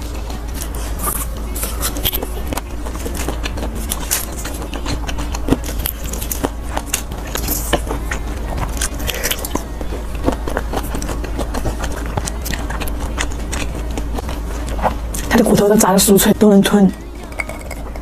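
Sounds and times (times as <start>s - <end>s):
crunchy chewing: 0.0s - 15.6s
steady low hum: 0.0s - 18.0s.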